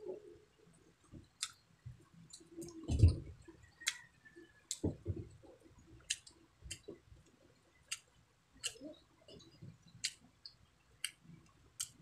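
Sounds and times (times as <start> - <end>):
mouth clicks while chewing: 3.8 - 4.1, 6.0 - 6.9, 7.9 - 11.2, 11.8 - 12.0.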